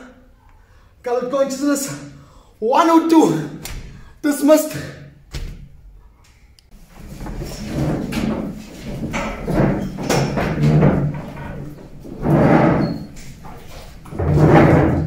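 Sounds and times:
chairs and desks scraping: 6.7 - 15.0.

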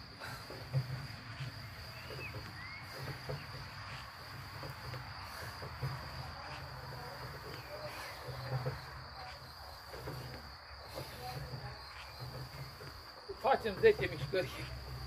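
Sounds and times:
crickets chirring: 0.0 - 15.0.

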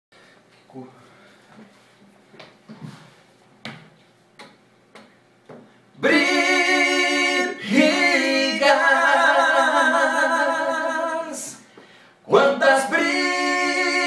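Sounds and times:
men singing in harmony: 6.0 - 11.6, 12.2 - 14.0.

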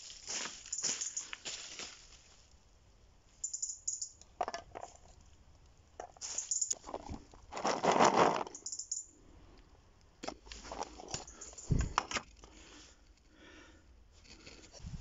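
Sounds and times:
dry leaves rustling and crunching: 0.0 - 2.5.

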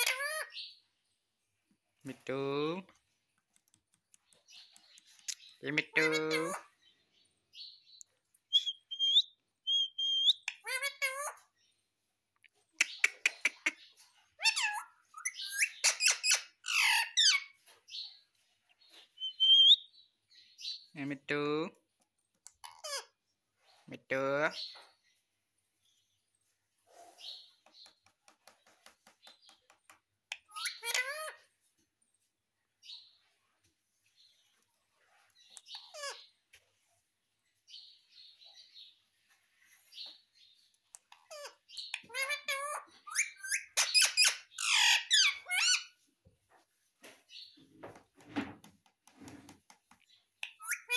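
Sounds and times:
parakeet squawks and chirps: 0.0 - 0.7, 8.5 - 11.4, 12.8 - 17.6, 22.6 - 23.2, 30.3 - 31.4, 35.6 - 36.3, 41.2 - 46.0, 50.4 - 50.9
parakeet squawks: 41.3 - 45.9.

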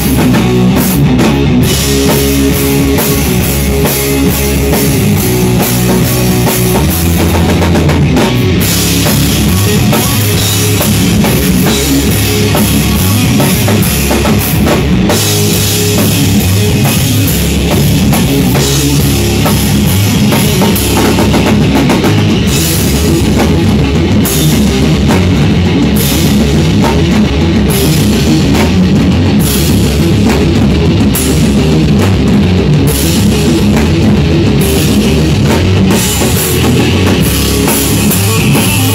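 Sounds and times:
heavy rock band playing: 0.0 - 38.9.

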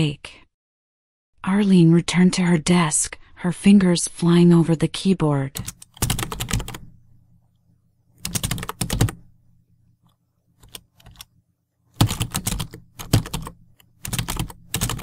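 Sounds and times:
fast typing on keyboard: 5.6 - 6.9, 8.2 - 9.2, 10.6 - 11.3, 12.0 - 15.0.

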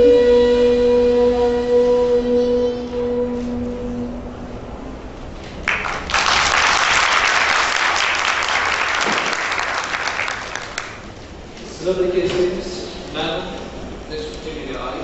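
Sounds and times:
audience applauding: 5.6 - 11.1.

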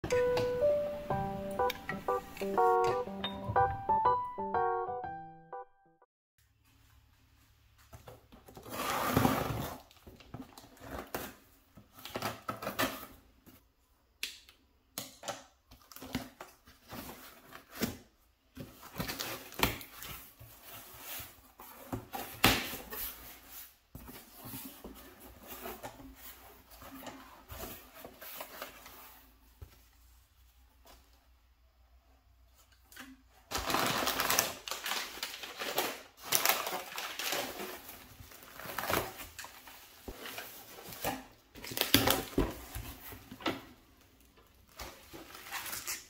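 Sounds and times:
packing paper rustling: 33.4 - 43.2, 44.2 - 46.0.

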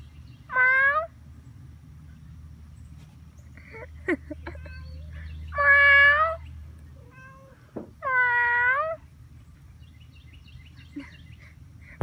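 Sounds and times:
cat meowing: 7.0 - 9.0.

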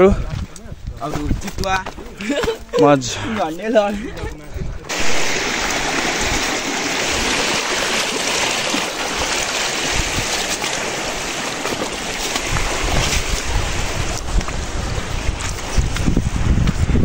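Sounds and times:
river water running over rocks: 4.9 - 16.5.

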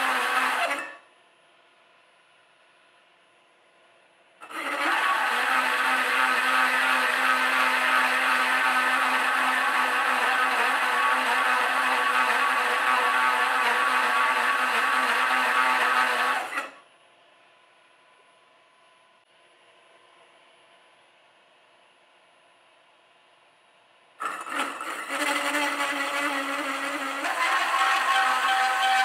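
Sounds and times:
hole saw cutting metal: 0.0 - 1.0, 4.4 - 16.8, 24.2 - 29.0.

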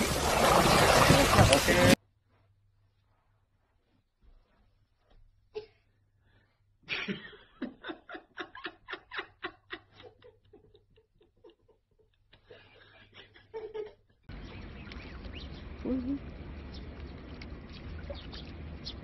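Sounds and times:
person laughing: 6.9 - 14.2.

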